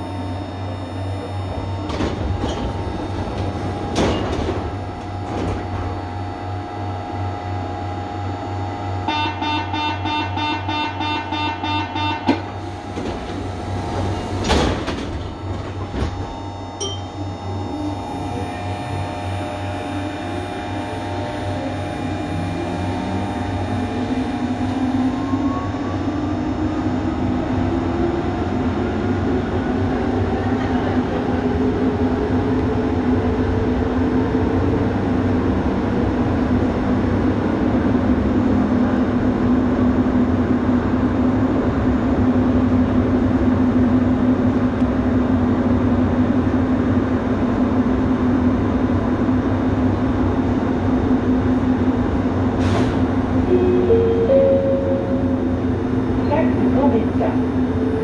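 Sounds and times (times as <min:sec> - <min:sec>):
train motor whine: 0:00.0 - 0:28.6
train doors closing: 0:00.6 - 0:06.5, 0:09.3 - 0:38.0, 0:51.5 - 0:58.0.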